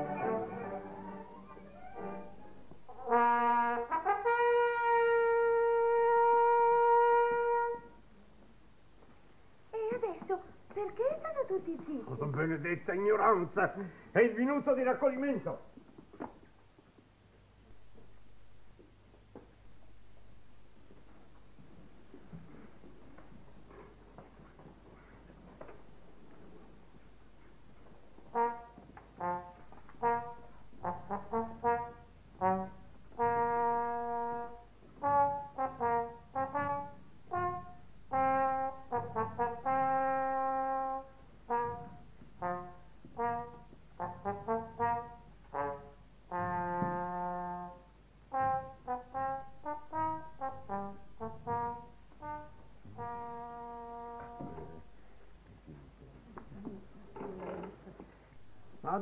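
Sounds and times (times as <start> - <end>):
solo brass instrument tune: 0.0 - 8.0, 28.2 - 54.9.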